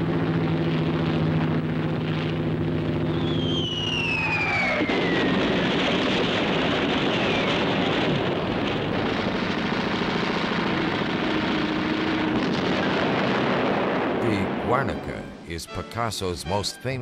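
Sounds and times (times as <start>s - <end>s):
roar of blast and debris: 0.0s - 14.6s
bomb whistle and explosion: 3.0s - 15.4s
faint falling whistle: 3.1s - 5.7s, 7.1s - 7.7s.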